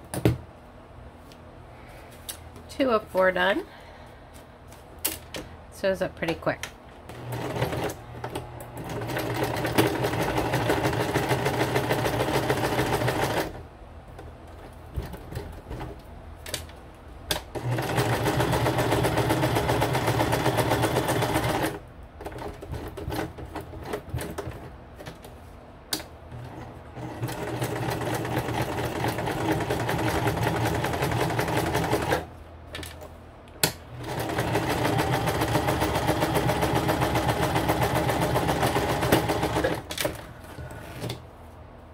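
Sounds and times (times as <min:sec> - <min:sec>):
sewing machine sewing: 0:07.1 - 0:13.6, 0:17.3 - 0:24.7, 0:26.3 - 0:32.3, 0:33.9 - 0:41.2.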